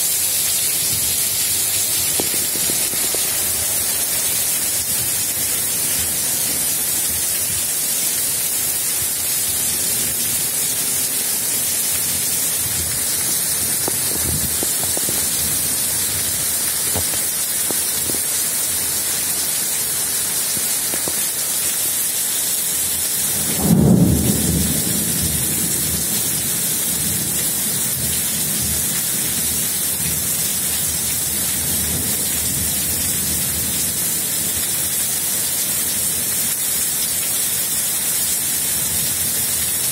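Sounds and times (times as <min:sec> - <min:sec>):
heavy rain hissing: 0:00.0 - 0:39.9
thunderclap rumbling: 0:00.9 - 0:05.4, 0:12.6 - 0:17.2.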